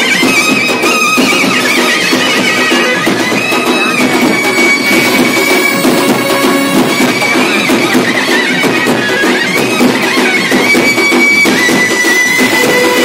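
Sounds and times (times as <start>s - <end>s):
clarinet melody: 3.6s - 7.8s, 12.4s - 13.0s
brass band playing: 4.0s - 7.8s, 12.4s - 13.0s.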